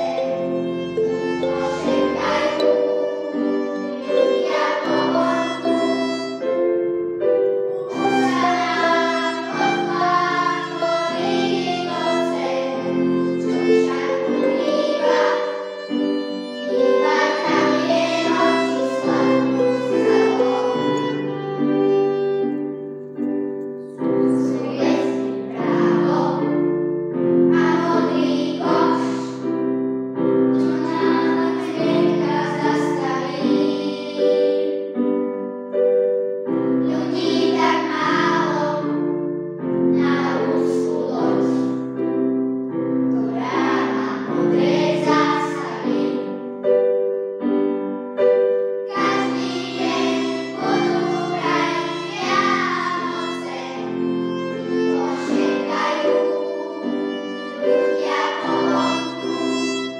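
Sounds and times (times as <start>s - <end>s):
electric keyboard chords: 0.0s - 9.0s
children's choir singing: 0.0s - 29.6s, 30.5s - 35.2s, 36.8s - 42.1s, 43.0s - 47.1s, 48.2s - 59.9s.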